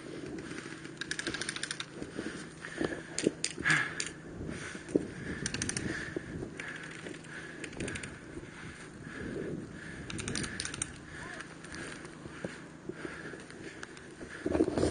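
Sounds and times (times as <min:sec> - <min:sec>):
rustling through long grass: 0:00.0 - 0:14.9.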